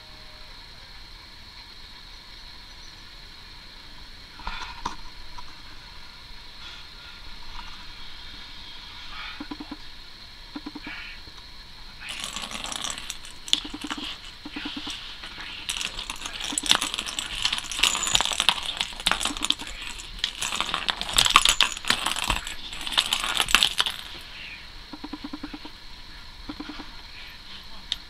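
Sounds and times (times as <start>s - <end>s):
paws hitting plastic track: 12.1s - 24.2s
plastic ball rattling in track: 12.1s - 24.2s.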